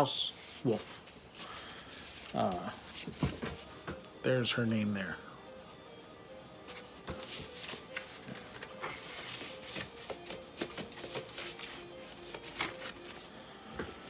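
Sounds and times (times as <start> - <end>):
record sleeves rustling and sliding: 0.4 - 3.7, 6.6 - 13.3.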